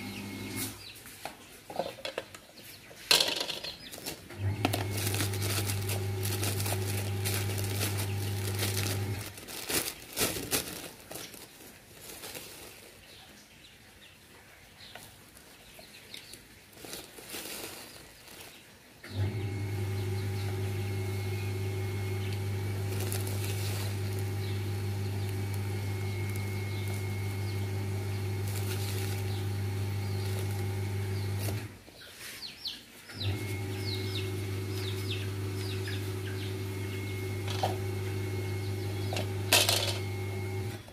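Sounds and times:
electrical hum: 0.0s - 0.9s, 4.3s - 11.0s, 19.0s - 31.8s, 33.1s - 40.9s
plastic bag rustling: 3.0s - 13.4s, 15.0s - 32.4s, 33.1s - 40.9s.

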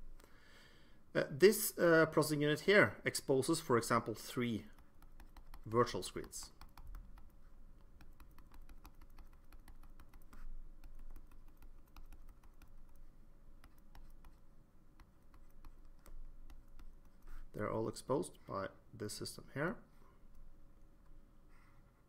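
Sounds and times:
faint steady hum: 0.0s - 22.0s
stylus tapping on drawing tablet: 4.7s - 13.0s.

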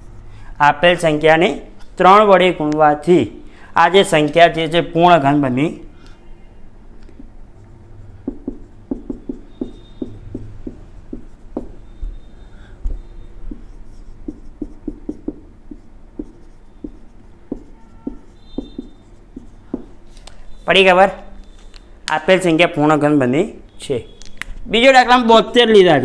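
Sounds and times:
marker writing on whiteboard: 7.0s - 21.9s.

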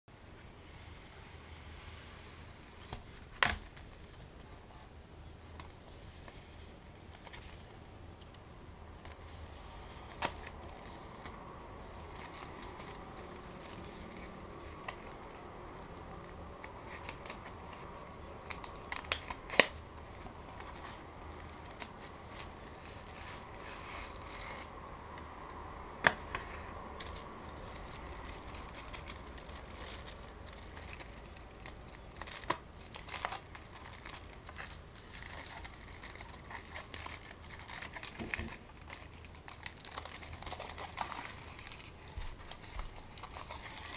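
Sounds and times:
foil wrapper crinkling: 16.8s - 24.7s, 27.0s - 43.9s.

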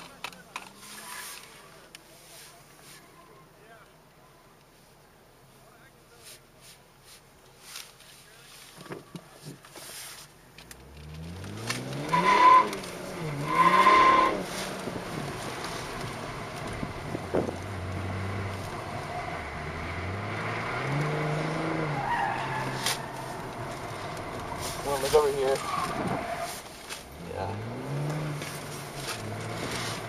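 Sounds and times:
car engine accelerating: 10.6s - 30.0s
tyres squealing: 11.6s - 14.8s, 20.8s - 26.7s.

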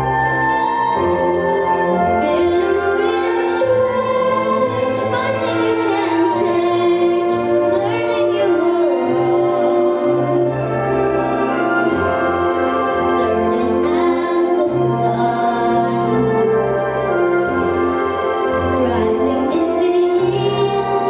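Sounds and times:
instrumental accompaniment: 0.0s - 21.0s
girl singing into a microphone: 2.2s - 10.2s, 13.1s - 16.1s, 18.7s - 21.0s.

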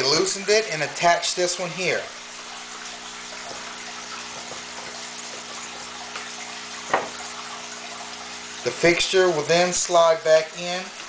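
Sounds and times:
short knock: 6.9s - 7.2s.

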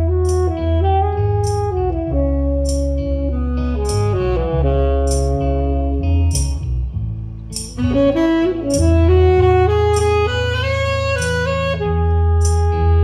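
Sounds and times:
bass and drums: 0.0s - 8.1s
saxophone solo: 0.0s - 13.0s.

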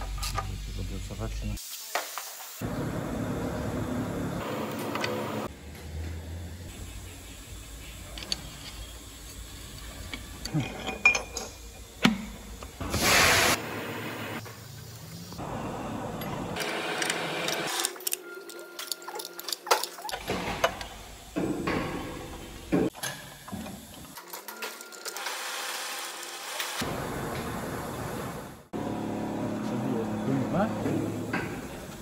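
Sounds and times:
metal tools clinking and scraping: 9.8s - 11.9s, 17.0s - 20.2s
loud hiss: 12.8s - 15.5s.

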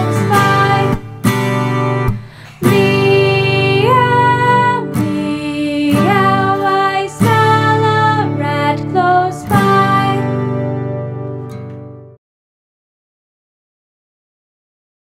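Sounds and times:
woman singing: 0.0s - 1.8s, 2.4s - 10.7s
strummed acoustic guitar: 0.0s - 12.2s.

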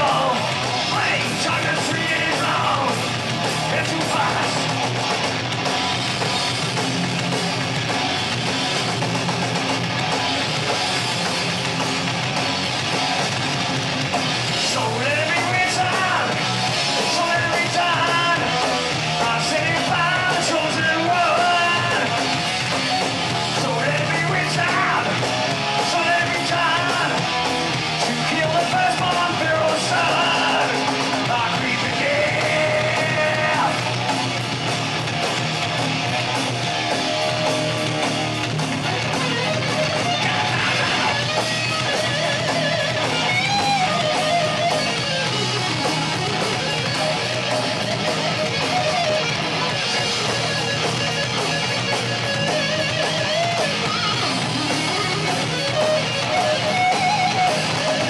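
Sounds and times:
singer singing and shouting: 0.0s - 4.9s, 14.5s - 22.4s, 23.1s - 34.2s, 36.9s - 58.0s
bass guitar: 0.0s - 58.0s
distorted electric guitars: 0.0s - 58.0s
drums: 0.0s - 58.0s.

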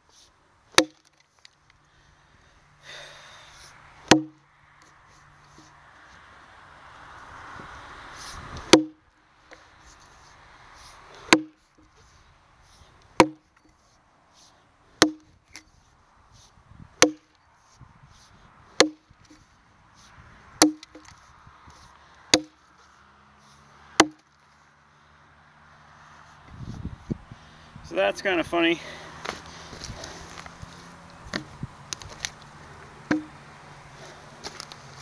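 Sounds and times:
axe chopping log: 0.7s - 1.2s, 4.0s - 4.4s, 8.6s - 9.0s, 11.2s - 11.6s, 13.2s - 13.6s, 15.0s - 15.7s, 17.0s - 17.3s, 18.8s - 19.4s, 20.6s - 21.2s, 22.3s - 22.6s, 24.0s - 24.3s, 31.3s - 32.1s, 33.1s - 33.4s.

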